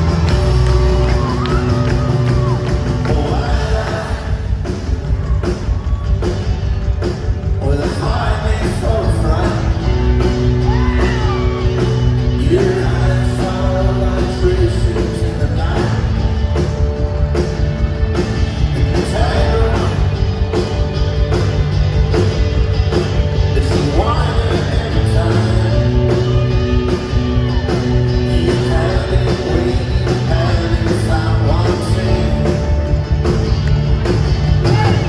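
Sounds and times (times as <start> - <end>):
drums: 0.0 - 35.0
electric guitars: 0.0 - 35.0
person singing: 0.8 - 4.7, 7.6 - 16.4, 18.8 - 20.2, 23.5 - 32.7.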